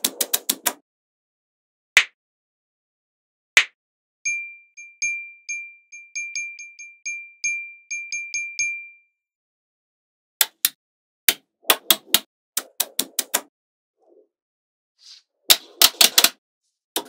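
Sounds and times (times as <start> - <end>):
high ringing pings: 4.3 - 9.2.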